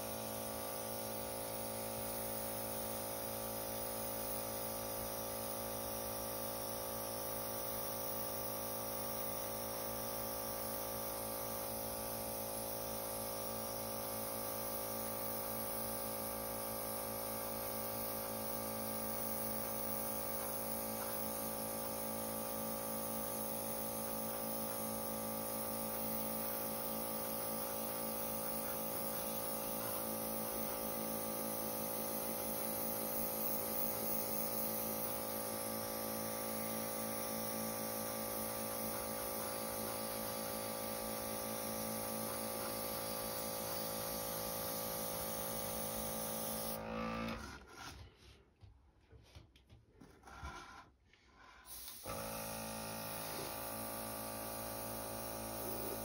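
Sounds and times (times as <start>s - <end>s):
compressor humming: 0.0s - 47.4s, 51.7s - 56.0s
airbrush air hiss: 17.7s - 46.8s, 51.7s - 52.2s, 53.0s - 56.0s.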